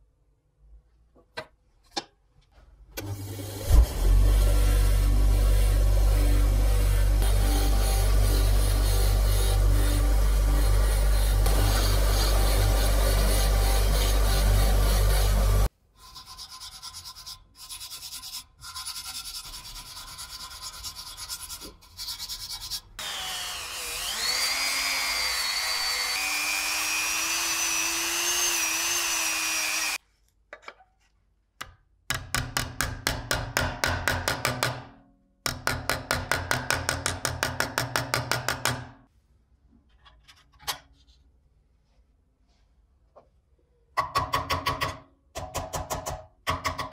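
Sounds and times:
rotary tool whining against steel: 3.0 - 15.7, 22.6 - 30.0.

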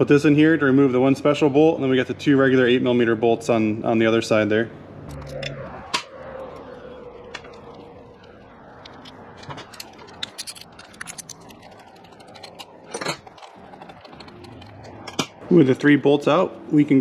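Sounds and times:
metal tool clicks and scrapes: 8.8 - 15.4.

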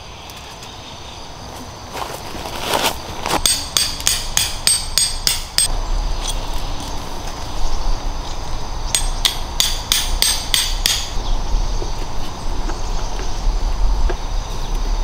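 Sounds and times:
tent peg hammered into gravel: 2.8 - 5.7, 9.0 - 11.2.

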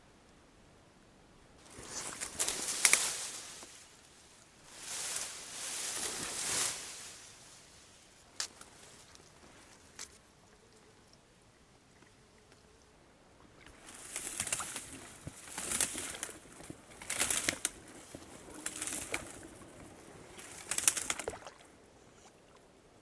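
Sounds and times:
oars dipping and splashing: 13.4 - 22.7.

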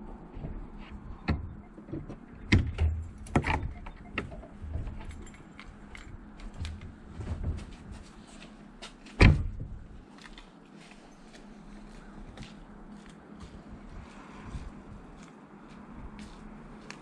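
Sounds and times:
clicks and rattles in tractor cab: 1.2 - 8.1.

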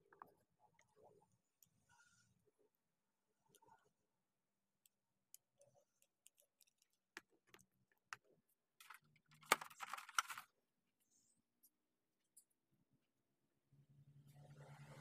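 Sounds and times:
plastic figure clicking and tapping: 5.3 - 10.4
box rustling: 8.8 - 10.4.

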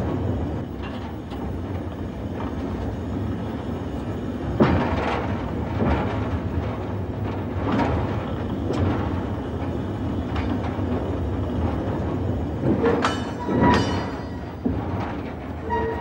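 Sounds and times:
train rumbling on rails: 0.0 - 16.0
sharp metallic clanks: 12.7 - 15.1.

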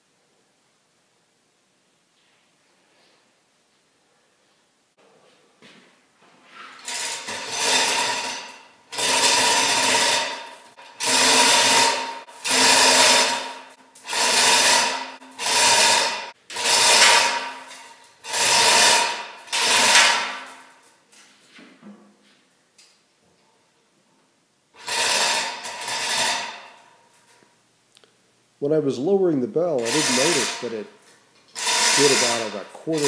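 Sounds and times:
chain rattling through hoist: 6.8 - 21.0, 24.8 - 27.4, 29.8 - 30.8, 31.5 - 33.0.

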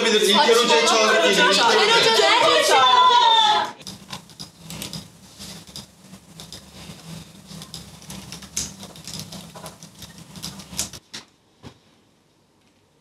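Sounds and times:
computer keyboard typing: 3.8 - 11.0
low steady hum: 3.8 - 11.0.

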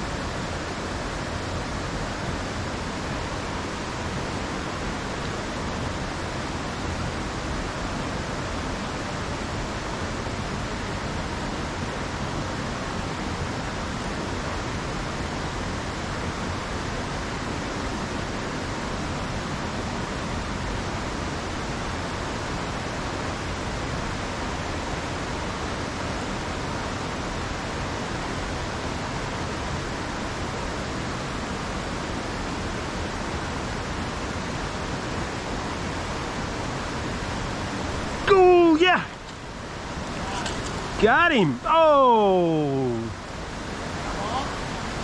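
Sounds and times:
creek rushing over boulders: 0.0 - 45.0.

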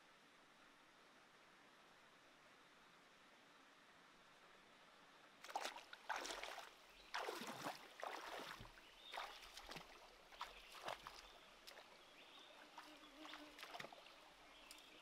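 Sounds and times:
feet splashing in stream: 5.4 - 15.0.

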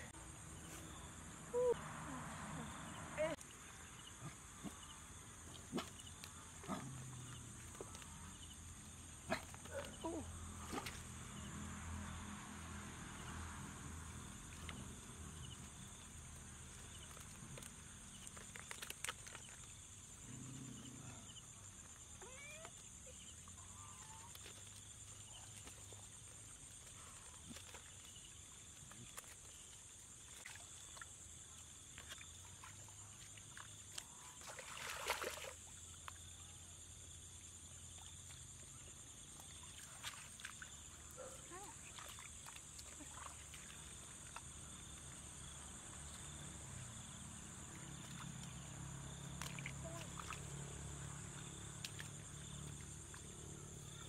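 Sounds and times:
small splashes in shallow water: 13.6 - 20.1, 21.7 - 36.4, 37.2 - 54.0.

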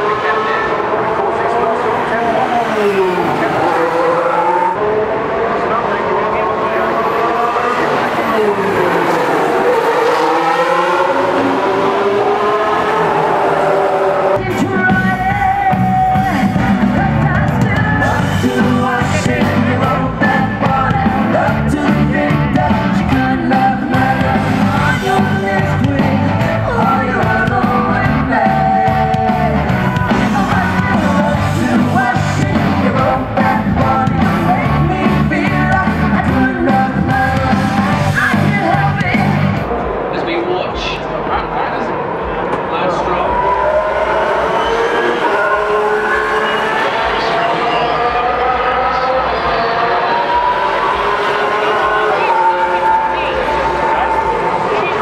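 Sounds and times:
racing car passing: 0.0 - 55.0
woman singing over band: 14.0 - 39.4.

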